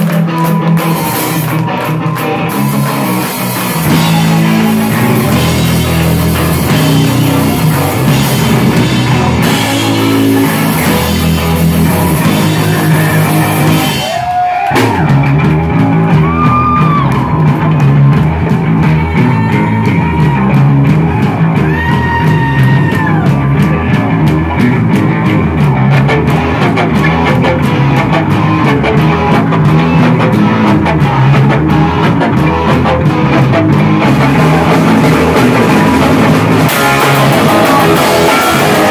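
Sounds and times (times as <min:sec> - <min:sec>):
distorted electric guitar: 0:00.0 - 0:38.9
drum kit: 0:00.0 - 0:38.9
live rock band playing: 0:00.0 - 0:38.9.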